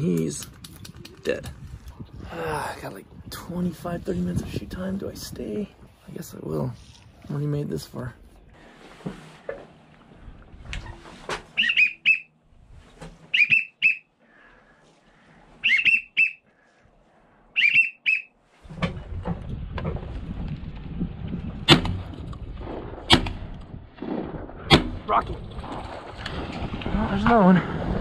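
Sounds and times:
sharp clicks: 0.1s - 1.5s
rustling and handling noise: 8.2s - 11.6s
duck whistles: 11.6s - 12.3s, 13.3s - 14.1s, 15.6s - 16.5s, 17.5s - 18.3s.

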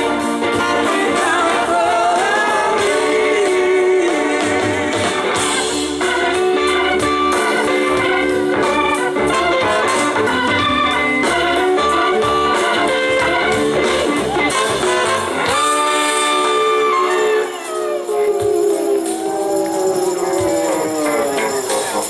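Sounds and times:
electric guitar: 0.0s - 22.0s
organ bass and drums: 4.9s - 15.9s.

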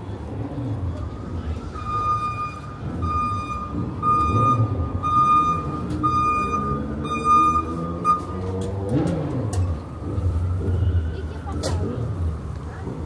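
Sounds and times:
street traffic noise: 0.0s - 13.0s
reversing alarm beeping: 1.6s - 8.6s.

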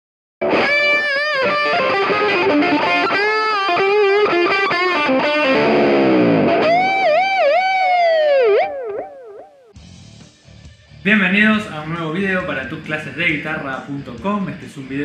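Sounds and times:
distorted electric guitar lead: 0.4s - 9.8s.

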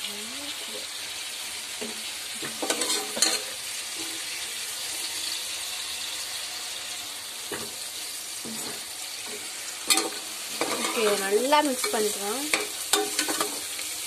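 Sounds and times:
onions sizzling in hot oil: 0.0s - 14.0s
spatula scraping a pan: 1.8s - 5.6s, 7.4s - 14.0s.

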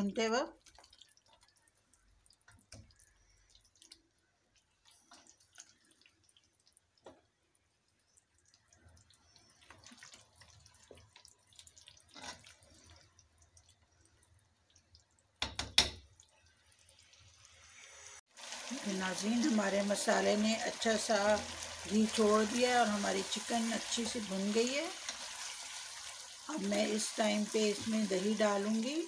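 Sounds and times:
spoon stirring thick sauce: 0.6s - 15.4s
spoon knocking on pot: 15.4s - 16.1s.

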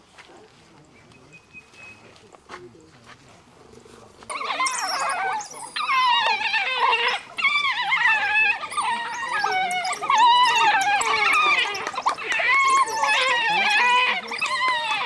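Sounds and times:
wild dogs whining calls: 4.3s - 15.0s.

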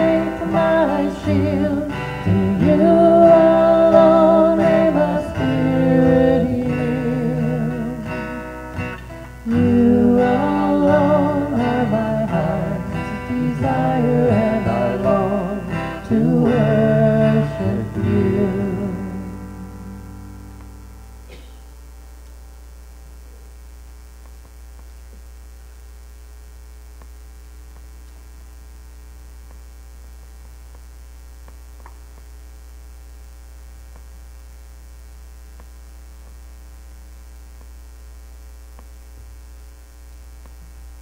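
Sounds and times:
acoustic guitar chord ringing: 0.0s - 22.6s
low electrical mains hum: 0.0s - 41.0s.

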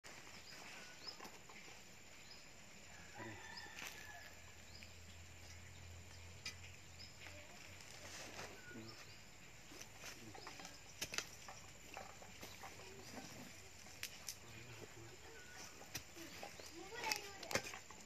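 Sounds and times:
small birds chirping: 0.1s - 18.0s
spade digging in soil: 9.7s - 14.4s.

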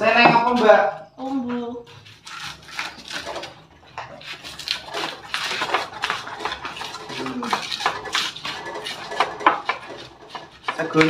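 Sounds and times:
pestle knocking in mortar: 4.6s - 11.0s.

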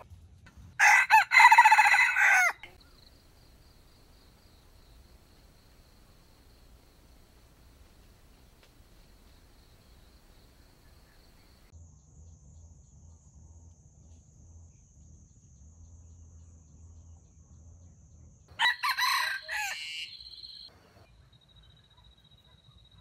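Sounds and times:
rooster crowing: 0.8s - 11.7s, 18.5s - 20.7s.

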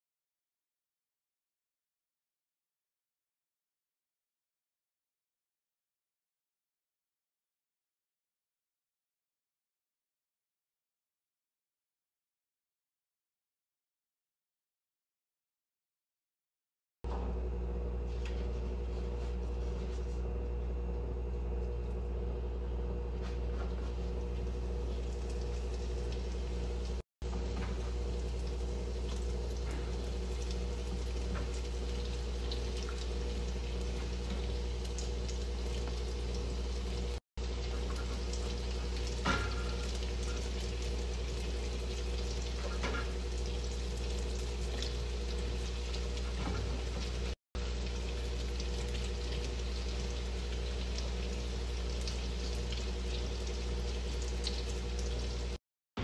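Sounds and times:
steady mechanical hum: 17.1s - 55.6s
hot oil sizzling in a pan: 24.3s - 55.6s.

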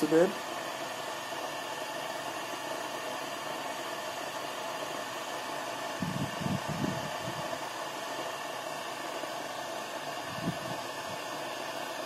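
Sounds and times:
radio static hiss: 0.0s - 6.3s.

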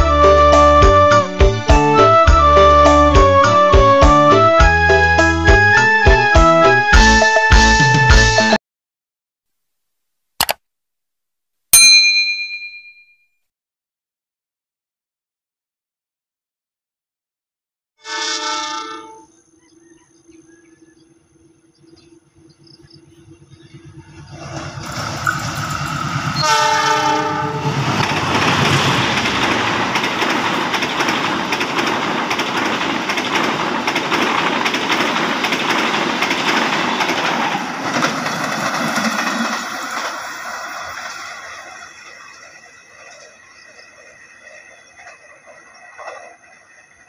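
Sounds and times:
train horn blast: 18.0s - 19.3s, 26.4s - 27.8s
train carriages passing on rails: 22.3s - 47.0s.

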